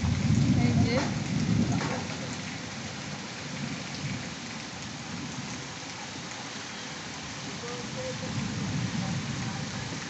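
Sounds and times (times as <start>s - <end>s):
steady rain falling: 0.0s - 10.0s.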